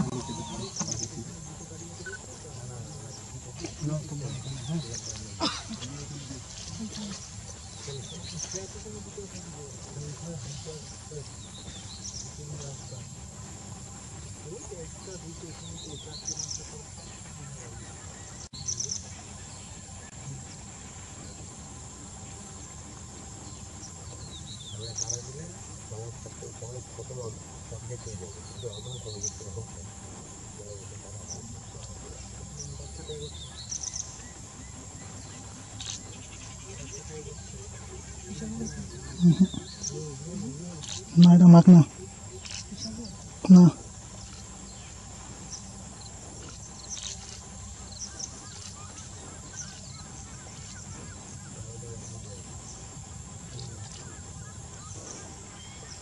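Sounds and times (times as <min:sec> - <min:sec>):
faint bird chirps: 0:00.0 - 0:56.0
high insect drone: 0:00.0 - 0:56.0.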